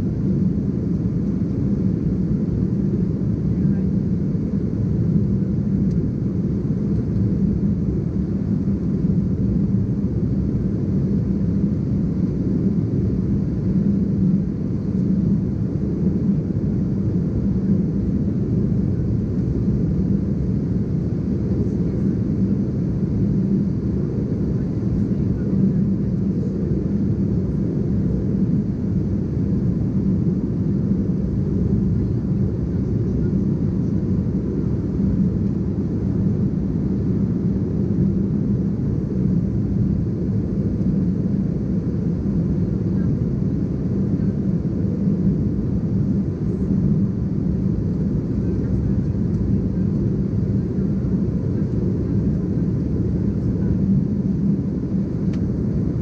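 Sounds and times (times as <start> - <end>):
airliner cabin drone: 0.0 - 56.0.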